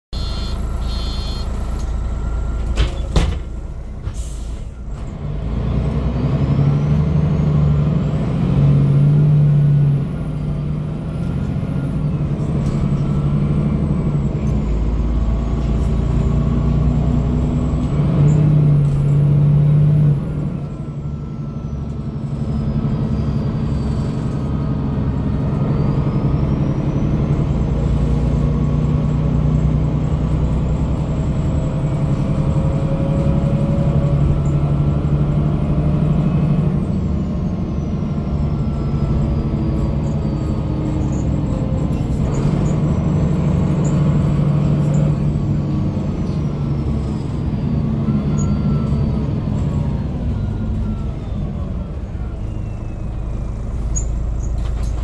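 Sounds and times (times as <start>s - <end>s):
bus diesel engine droning: 0.1s - 55.0s
air brakes hissing: 4.0s - 5.0s.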